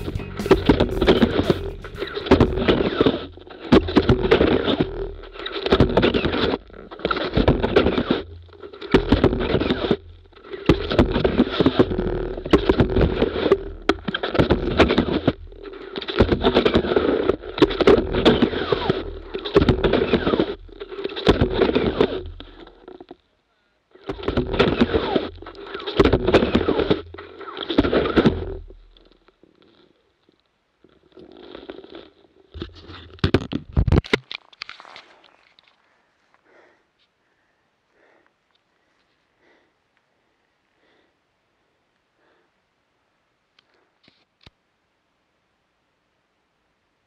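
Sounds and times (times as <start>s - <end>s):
ski sliding over crusty snow: 0.0s - 23.1s, 24.0s - 30.0s, 30.9s - 33.1s, 34.4s - 36.0s.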